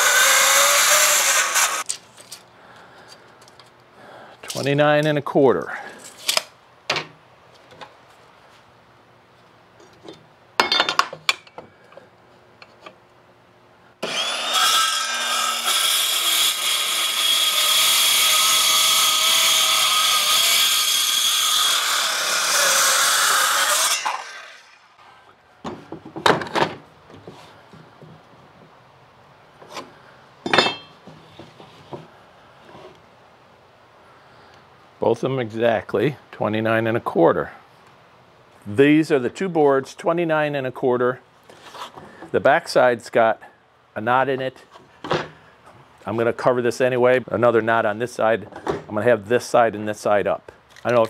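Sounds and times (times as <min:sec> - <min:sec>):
circular saw cutting wood: 0:00.0 - 0:01.9, 0:14.0 - 0:25.0.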